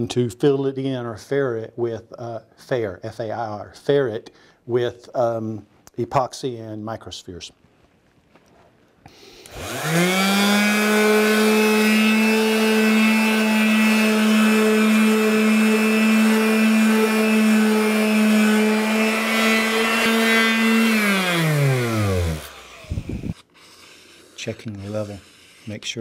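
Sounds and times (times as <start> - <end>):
palm sander whining: 9.4 - 26.0.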